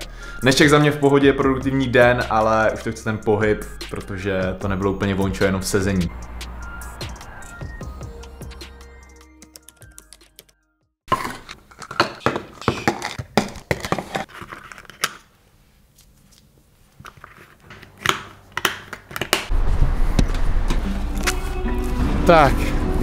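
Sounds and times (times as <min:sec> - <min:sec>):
plastic lids snapping: 0:17.1 - 0:19.5.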